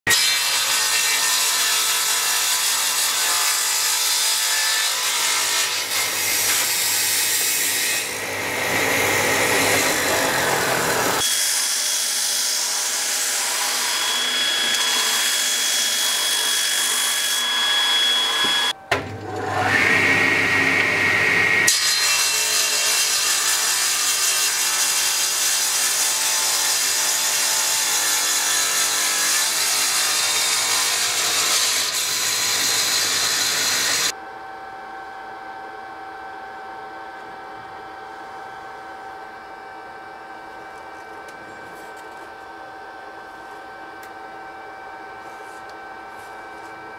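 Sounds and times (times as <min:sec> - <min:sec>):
table saw cutting: 0:00.1 - 0:34.2.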